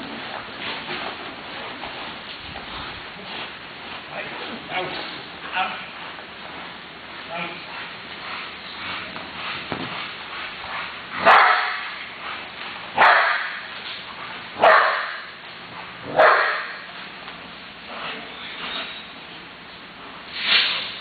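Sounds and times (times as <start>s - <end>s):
dog barking: 11.2s - 11.9s, 13.0s - 13.6s, 14.6s - 15.2s, 16.1s - 16.8s.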